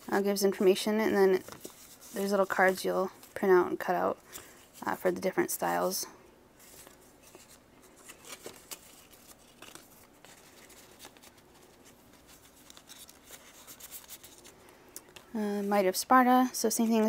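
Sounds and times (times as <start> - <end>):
paper cards rustling and tapping: 1.4 - 3.4, 6.6 - 15.3.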